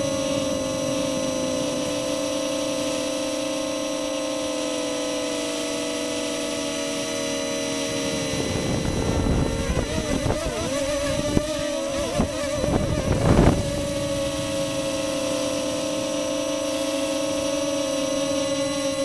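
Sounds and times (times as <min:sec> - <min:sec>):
low rumbling buffets: 0:00.0 - 0:04.9, 0:06.8 - 0:19.0
quadcopter motors whining: 0:00.0 - 0:19.0.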